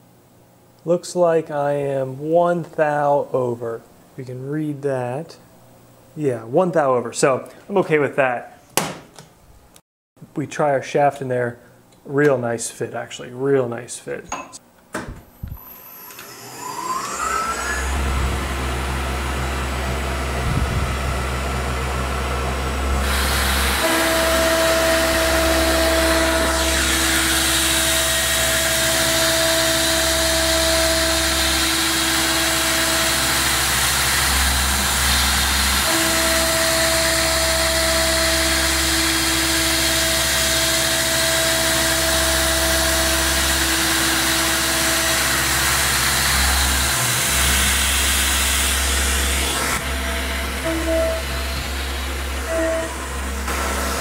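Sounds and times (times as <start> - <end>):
end mill cutting tone: 15.5 - 54.0
milling spindle whine: 15.6 - 54.0.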